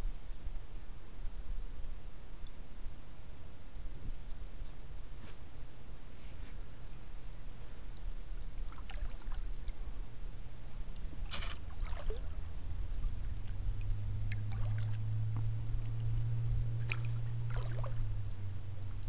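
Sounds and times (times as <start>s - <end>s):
steady low hum: 0.0s - 19.0s
paddle splashing water: 8.6s - 9.7s, 11.2s - 18.2s.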